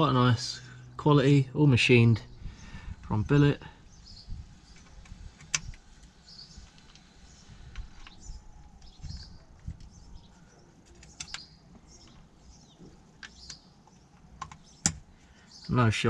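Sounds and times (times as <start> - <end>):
faint bird chirps: 3.8 - 16.0.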